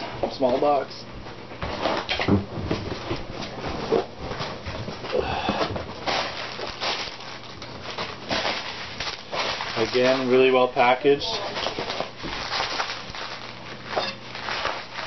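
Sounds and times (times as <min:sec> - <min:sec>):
plastic wrap crinkling: 0:05.9 - 0:15.0.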